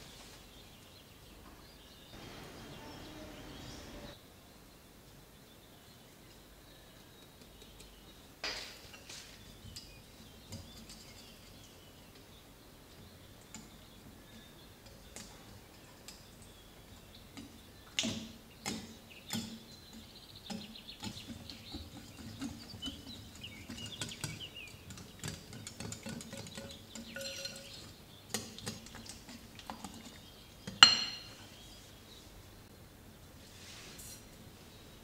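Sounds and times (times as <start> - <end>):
utensils clinking against dishes: 20.5 - 30.0, 30.7 - 31.4.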